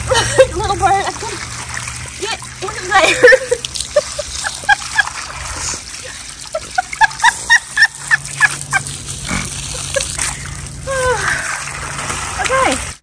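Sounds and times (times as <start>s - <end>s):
woman laughing: 0.0s - 1.4s, 2.9s - 11.4s
hose water splashing: 0.0s - 13.0s.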